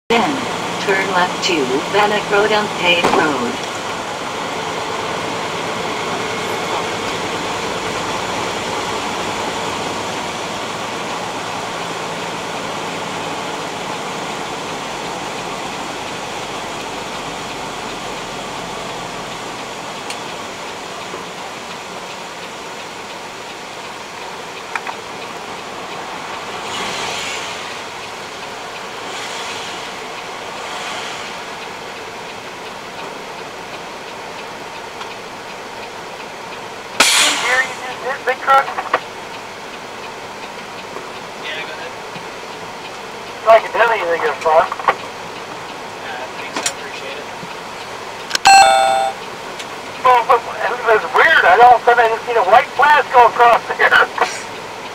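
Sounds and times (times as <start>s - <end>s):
diesel engine drone: 0.1s - 49.2s
road and tyre noise: 0.1s - 54.9s
rain: 0.3s - 48.4s, 49.4s - 54.9s
hiss: 26.6s - 27.8s, 29.1s - 30.0s, 30.6s - 31.5s, 37.0s - 37.6s.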